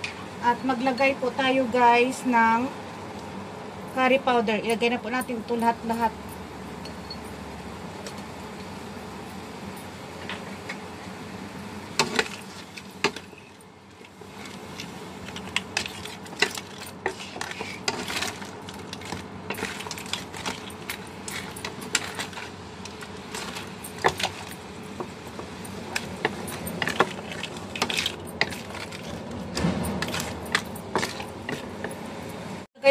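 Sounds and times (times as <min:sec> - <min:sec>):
crab shells clattering: 0:14.2 - 0:32.0.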